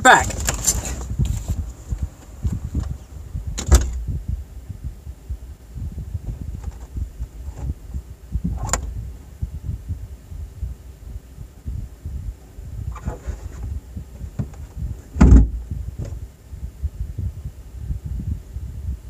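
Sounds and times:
low muffled rumbling: 0.0s - 19.0s
car door shutting: 3.6s - 4.0s, 14.4s - 16.2s.

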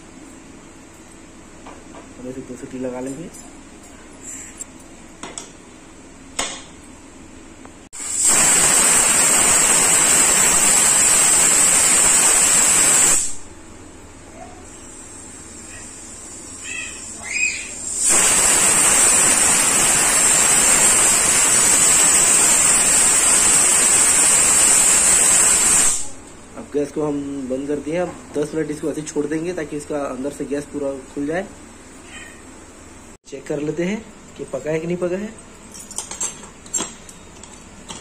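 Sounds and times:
pressure cooker whistling: 8.0s - 13.4s, 17.2s - 26.1s.

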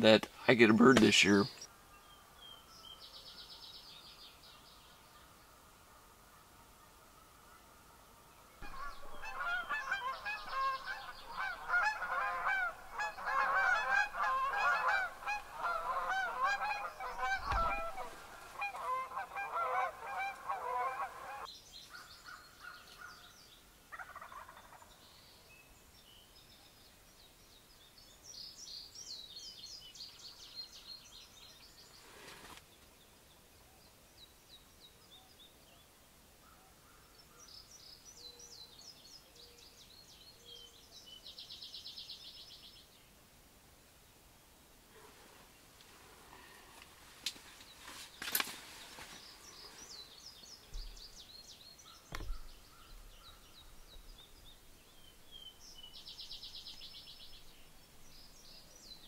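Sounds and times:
small birds chirping: 8.4s - 20.5s, 45.4s - 59.0s
large birds calling: 8.5s - 23.3s.

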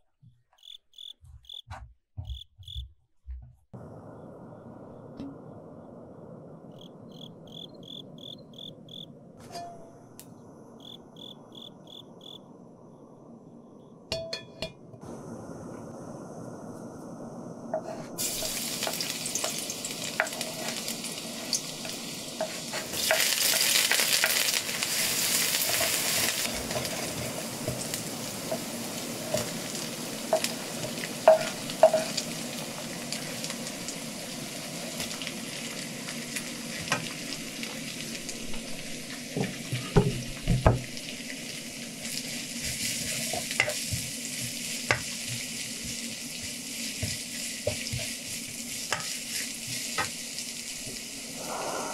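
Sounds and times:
vegetables sizzling in hot oil: 18.2s - 51.7s.

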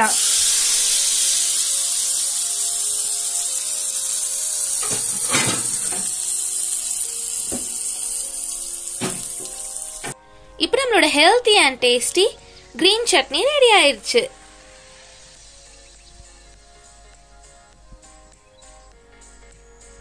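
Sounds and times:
hot oil sizzling: 0.0s - 10.2s, 12.8s - 16.5s.

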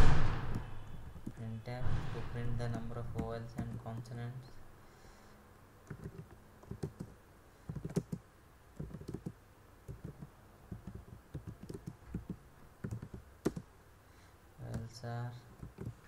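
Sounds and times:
computer keyboard typing: 0.5s - 1.4s, 2.6s - 4.2s, 5.9s - 8.2s, 8.8s - 13.7s, 15.6s - 16.0s.

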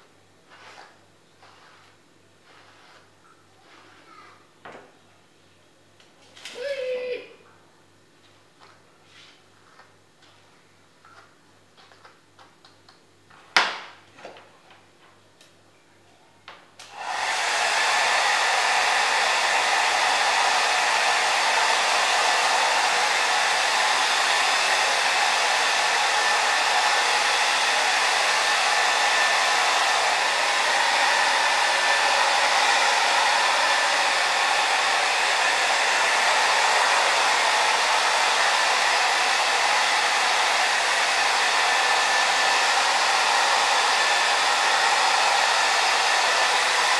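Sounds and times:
hair dryer blowing: 16.8s - 46.9s.

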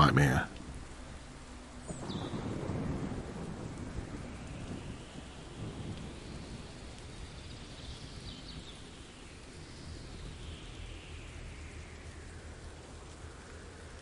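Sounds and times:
steady rain: 0.0s - 14.0s
thunder rumble: 1.9s - 9.0s.

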